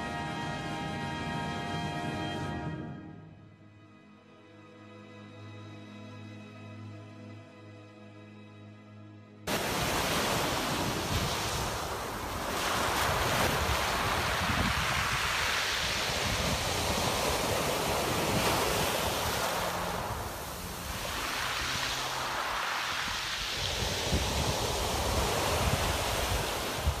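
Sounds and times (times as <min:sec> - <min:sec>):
sea waves: 0:09.5 - 0:27.0
wind: 0:09.5 - 0:27.0.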